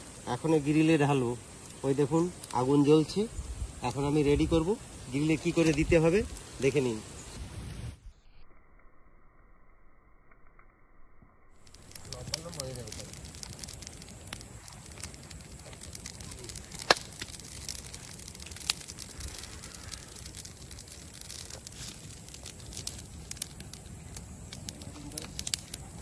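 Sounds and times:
wood fire crackling: 0:00.0 - 0:08.1, 0:11.5 - 0:26.0.

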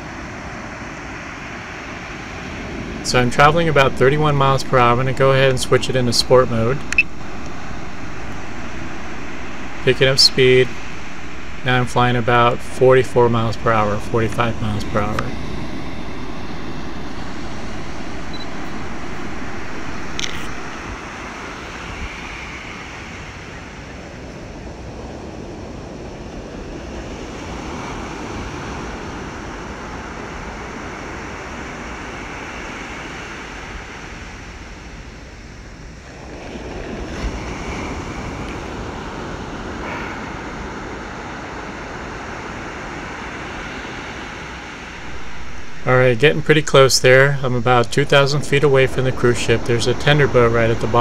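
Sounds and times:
faint steady hum: 0:00.0 - 0:23.7, 0:37.7 - 0:51.0
waves washing in: 0:00.0 - 0:51.0.

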